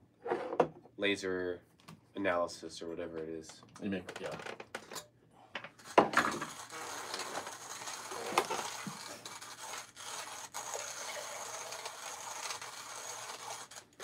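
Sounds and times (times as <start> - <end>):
coffee grinder grinding beans: 5.8 - 14.0.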